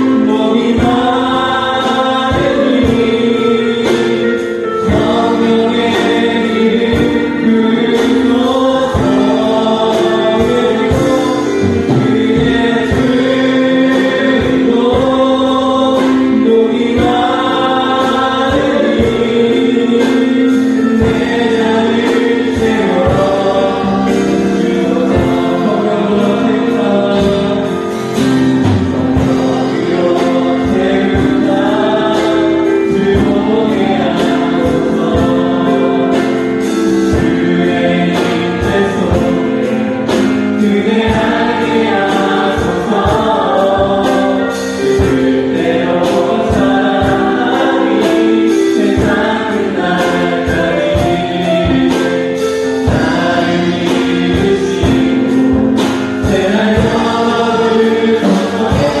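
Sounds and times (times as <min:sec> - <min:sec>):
women singing together: 0:00.0 - 0:27.9, 0:29.1 - 0:59.0
drum kit steady beat: 0:00.0 - 0:59.0
electronic keyboard chords: 0:00.0 - 0:59.0.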